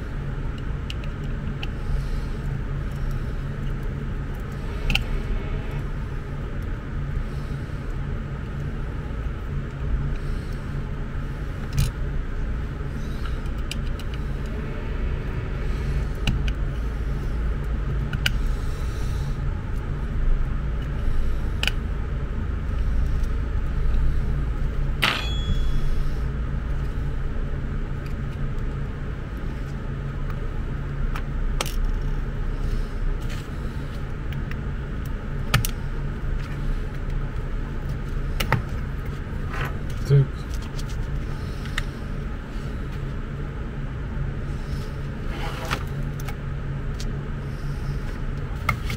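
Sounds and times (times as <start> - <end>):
steady low rumble: 0.0 - 48.9
loud ringing click: 25.0 - 25.9.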